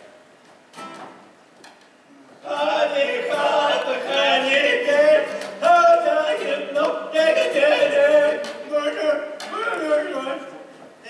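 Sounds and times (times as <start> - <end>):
men singing together: 2.4 - 10.6.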